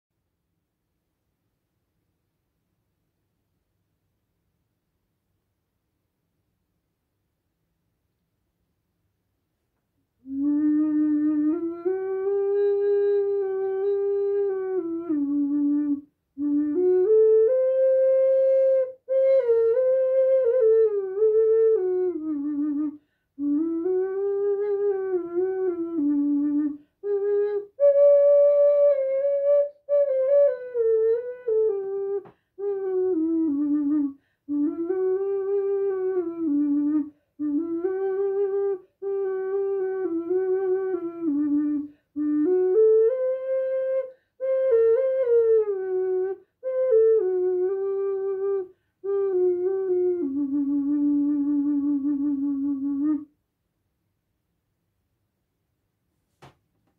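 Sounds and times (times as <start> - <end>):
ocarina melody: 10.2 - 53.3.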